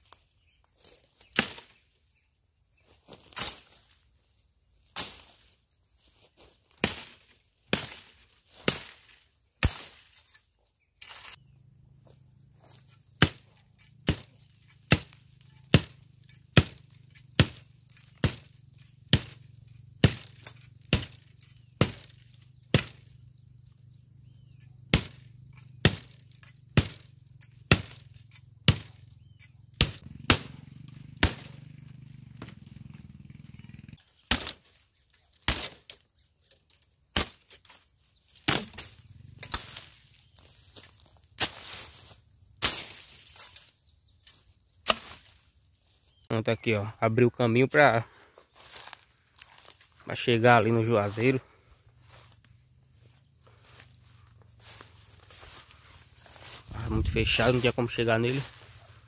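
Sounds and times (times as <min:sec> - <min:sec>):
blade chopping brush: 0:12.8 - 0:23.2, 0:24.4 - 0:32.8, 0:37.2 - 0:45.4.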